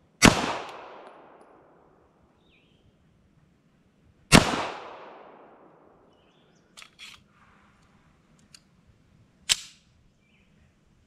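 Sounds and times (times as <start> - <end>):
pistol shot: 0.2 - 1.6, 4.3 - 5.8
sharp metallic snap: 9.5 - 9.8.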